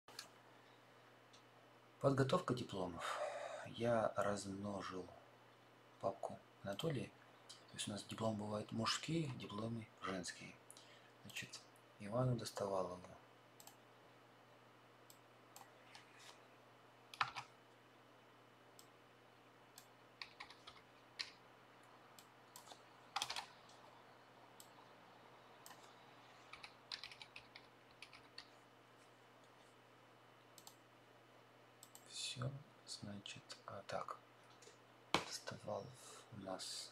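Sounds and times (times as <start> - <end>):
faint steady hum: 0.1 - 36.9
keyboard typing: 17.1 - 17.6, 19.7 - 23.9, 25.6 - 28.6.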